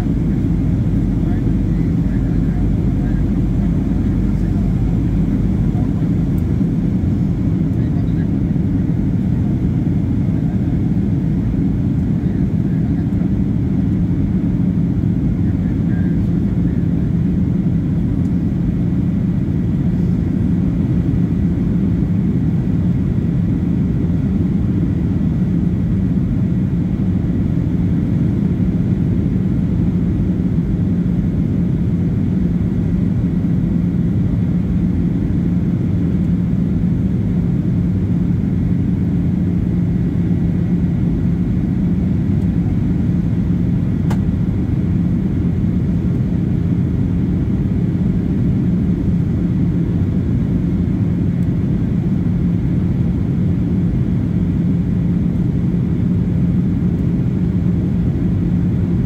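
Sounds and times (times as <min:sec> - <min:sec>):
faint steady whine: 0:00.0 - 0:59.0
jet engine and airflow rumble: 0:00.0 - 0:59.0.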